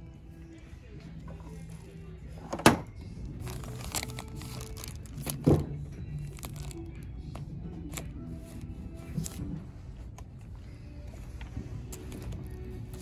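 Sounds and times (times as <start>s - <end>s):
faint background music: 0.0s - 13.0s
plastic packaging crinkling: 3.2s - 5.5s, 6.2s - 7.0s.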